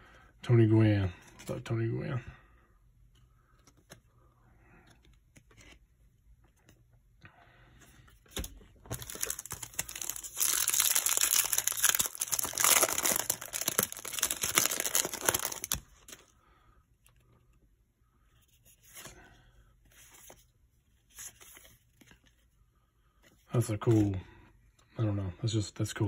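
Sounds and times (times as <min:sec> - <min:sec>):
foil wrapper crinkling and tearing: 0:08.9 - 0:16.1.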